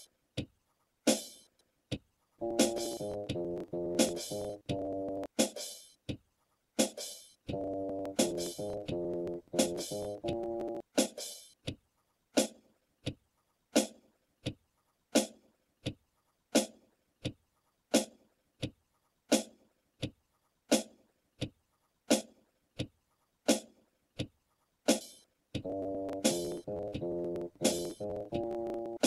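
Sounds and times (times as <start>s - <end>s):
music: 1.1s - 1.5s, 2.4s - 6.2s, 6.8s - 11.8s, 16.5s - 16.8s, 22.1s - 22.4s, 23.5s - 23.8s, 24.9s - 29.0s
clock ticking: 2.4s - 5.3s, 7.5s - 10.8s, 25.6s - 29.0s.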